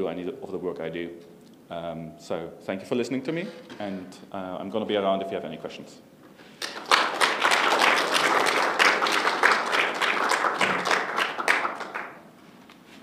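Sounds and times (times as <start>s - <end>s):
audience applauding: 6.6s - 12.2s.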